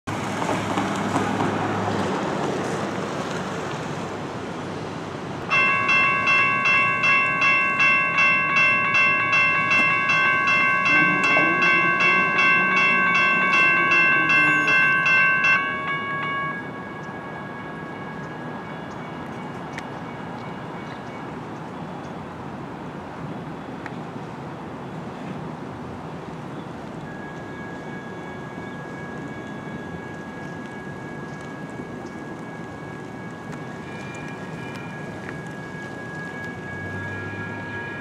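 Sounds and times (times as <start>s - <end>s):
road traffic: 0.1s - 38.0s
crossing bells ringing: 5.5s - 21.0s, 26.7s - 38.0s.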